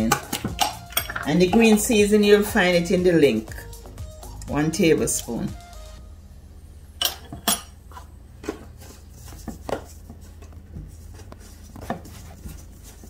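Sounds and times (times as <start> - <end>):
utensils clinking on steel bowl: 0.0 - 2.4, 7.0 - 8.0
low steady hum: 0.0 - 13.0.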